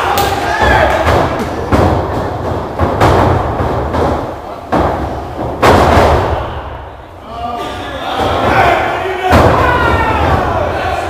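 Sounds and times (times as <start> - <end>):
bodies thudding on wrestling ring: 0.3 - 6.5.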